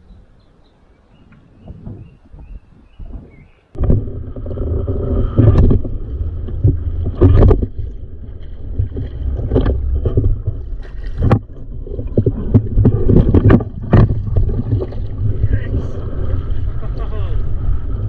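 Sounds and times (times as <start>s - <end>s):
wind buffeting microphone: 1.1s - 18.0s
sharp thumps and knocks: 3.0s - 7.9s, 8.8s - 15.1s.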